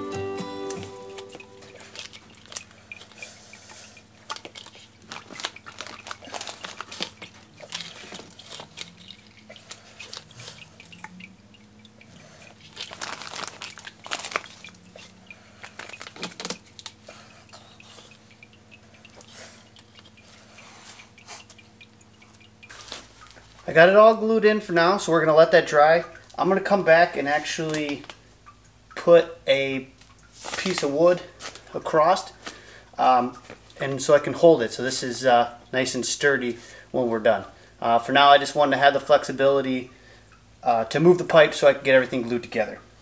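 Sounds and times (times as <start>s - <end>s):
faint low hum: 0.0s - 43.0s.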